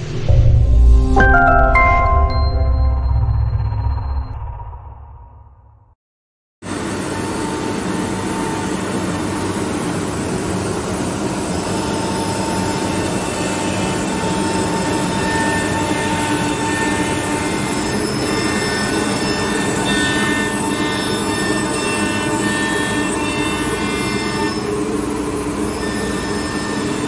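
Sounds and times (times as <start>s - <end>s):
high machine whines: 6.6s - 27.0s
router machine running: 6.7s - 27.0s.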